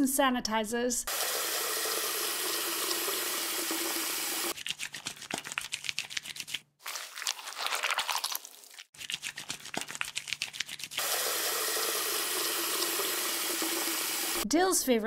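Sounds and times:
water running from tap: 0:01.1 - 0:05.4, 0:11.0 - 0:14.4
hands washing splashing: 0:01.6 - 0:14.4.

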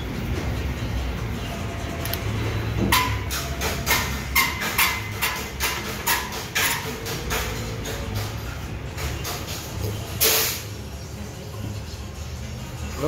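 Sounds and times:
metal clanks and knocks: 0:02.8 - 0:10.0.

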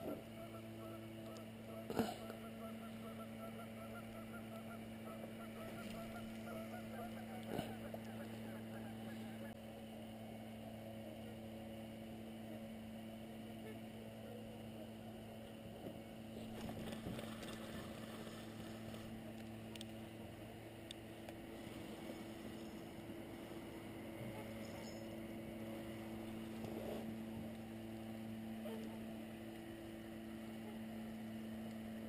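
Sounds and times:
faint steady hum: 0:00.0 - 0:32.0
geese honking: 0:00.1 - 0:09.6.

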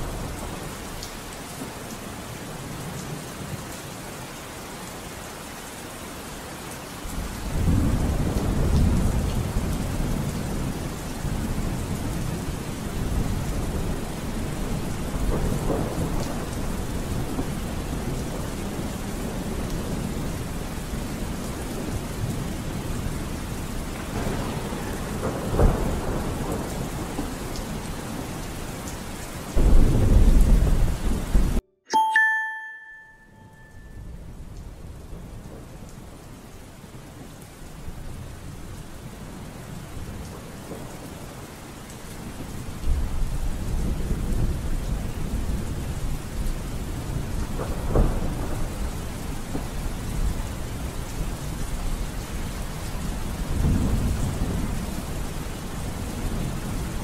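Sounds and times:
steady rain: 0:00.0 - 0:31.6, 0:33.7 - 0:57.0
thunder rumbling: 0:23.8 - 0:28.4, 0:29.5 - 0:31.6, 0:42.4 - 0:51.3
short ringing tone: 0:31.9 - 0:34.0.

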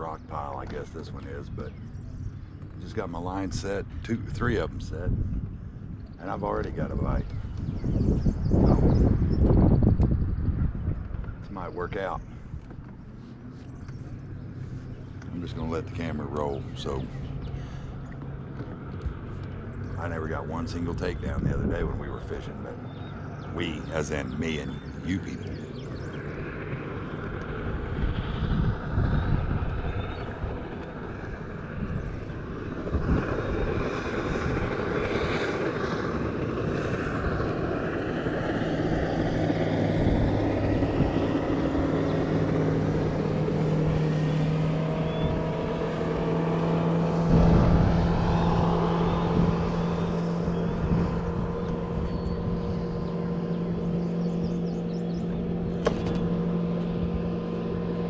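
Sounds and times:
boat motor humming: 0:00.0 - 0:58.0
wind buffeting microphone: 0:00.0 - 0:58.0.

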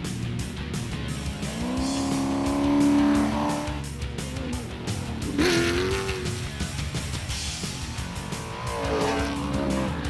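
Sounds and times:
background music with beat: 0:00.0 - 0:10.0
buggy engines revving: 0:00.0 - 0:10.0.

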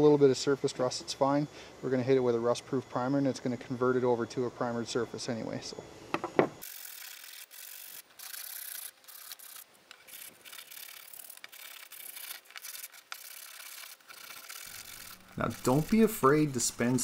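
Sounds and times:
sandpaper scraping steel: 0:06.6 - 0:17.0.

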